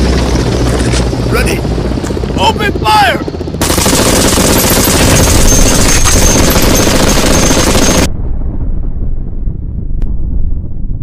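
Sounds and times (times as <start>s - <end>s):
low rumble: 3.2s - 11.0s
machine-gun burst: 3.6s - 8.1s.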